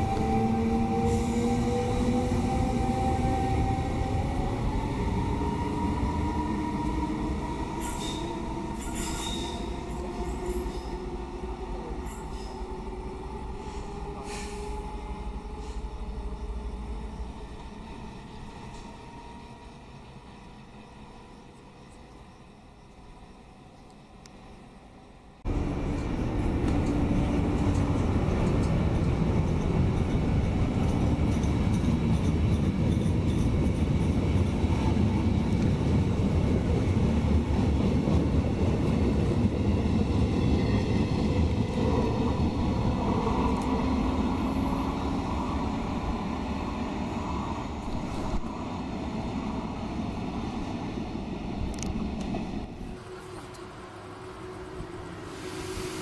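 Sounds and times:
train wheels rumbling on rails: 0:25.4 - 0:54.0.

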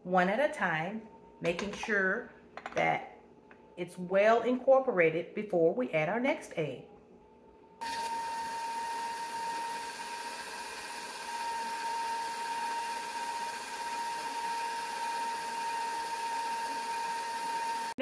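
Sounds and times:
stand mixer motor whine: 0:07.8 - 0:18.0.

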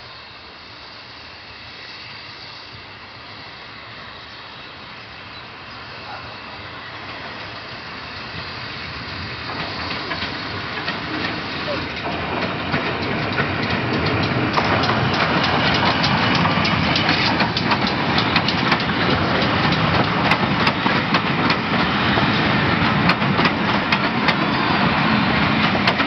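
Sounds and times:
train coaches rolling rumble: 0:00.0 - 0:26.0
wheels clicking over rail joints: 0:09.2 - 0:26.0.

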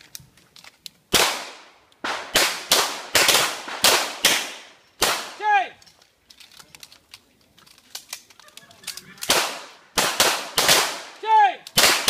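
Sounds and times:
pistol shots: 0:01.1 - 0:05.4, 0:09.2 - 0:12.0.

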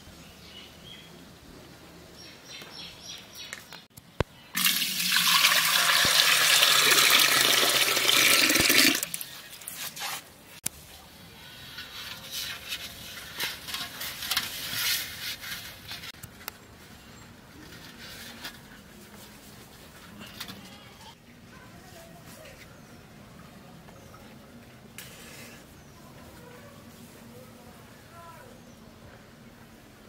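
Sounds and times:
water pouring into metal pot: 0:04.6 - 0:09.4.

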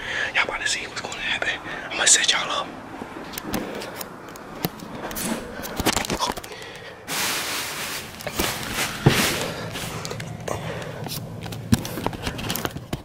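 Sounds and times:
phone handling clicks and bumps: 0:03.3 - 0:06.8, 0:08.2 - 0:13.0
rustling against microphone: 0:07.1 - 0:10.4.

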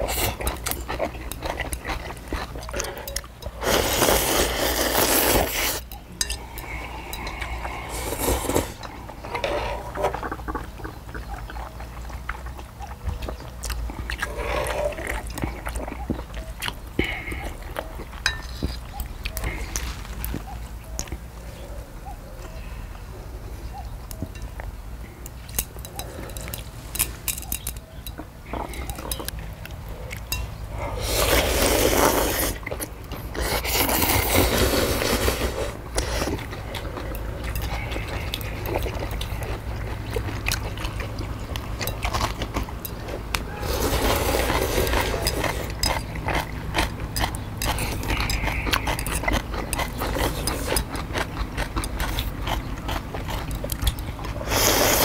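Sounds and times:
chewing: 0:00.0 - 0:23.1, 0:23.7 - 0:55.0
people slurping noodles: 0:01.4 - 0:11.2, 0:14.0 - 0:15.9, 0:30.7 - 0:40.7, 0:43.4 - 0:51.0, 0:54.3 - 0:55.0.

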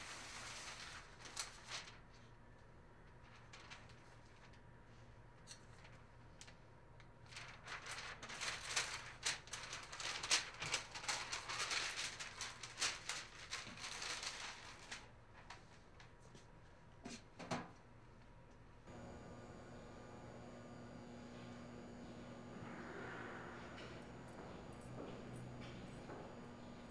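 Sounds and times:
paper rustling and crinkling: 0:00.0 - 0:02.4, 0:03.0 - 0:05.0, 0:07.2 - 0:16.3, 0:18.9 - 0:26.9.

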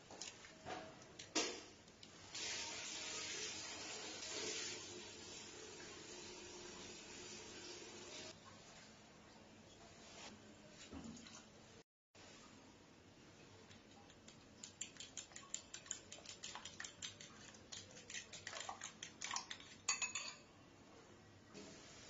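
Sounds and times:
fork beating eggs in a bowl: 0:13.6 - 0:20.4.

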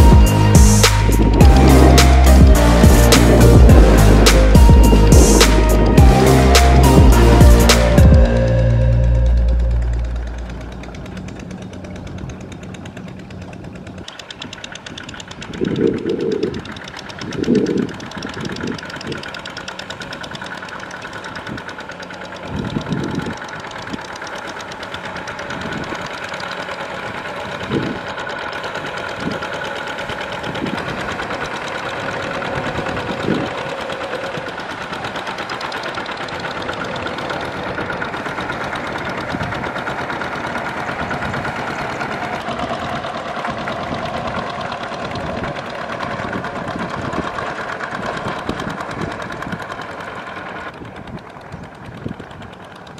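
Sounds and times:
loud low rumbling bursts: 0:00.0 - 0:14.0
diesel engine knocking: 0:00.0 - 0:52.9.

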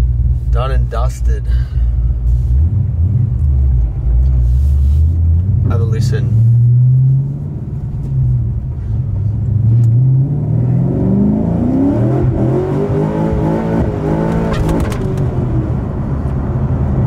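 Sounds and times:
car engine revving: 0:02.3 - 0:17.0.

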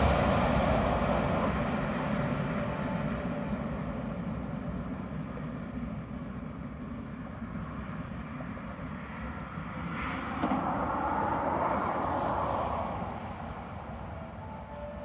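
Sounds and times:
distant traffic rumble: 0:00.0 - 0:15.0
passing vehicle whoosh: 0:09.0 - 0:14.4.

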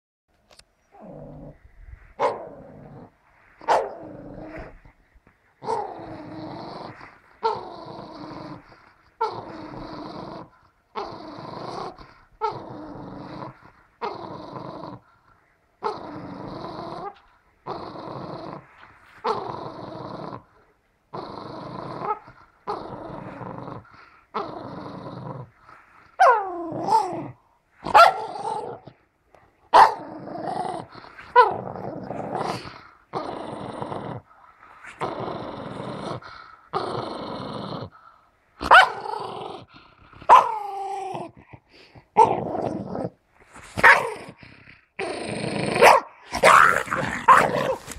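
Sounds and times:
dog growling: 0:00.9 - 0:29.1, 0:29.7 - 0:47.9
dog yelping barks: 0:03.7 - 0:03.9, 0:27.9 - 0:28.3, 0:29.7 - 0:30.0, 0:38.6 - 0:39.0, 0:40.3 - 0:40.6, 0:43.8 - 0:44.1, 0:45.8 - 0:47.9.

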